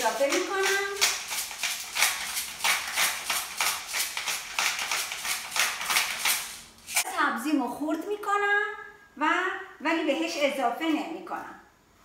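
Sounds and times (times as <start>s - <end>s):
pepper mill grinding: 0.0s - 7.1s.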